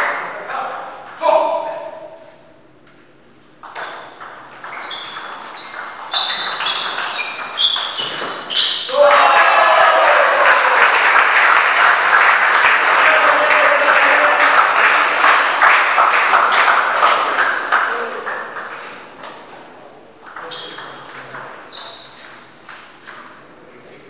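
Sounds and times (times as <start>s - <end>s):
audience clapping: 9.0s - 18.9s.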